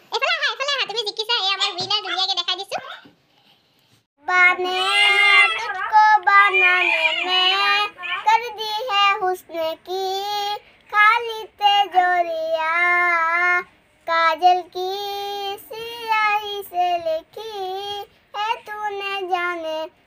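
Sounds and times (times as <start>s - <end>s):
girl singing unaccompanied: 4.2s - 20.0s.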